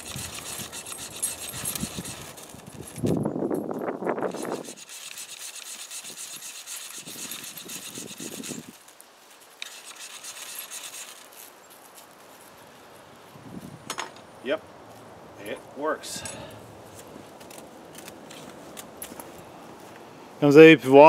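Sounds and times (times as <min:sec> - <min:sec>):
blade scraping ferrocerium rod: 0:00.0 - 0:03.2, 0:04.2 - 0:08.8, 0:09.6 - 0:11.3.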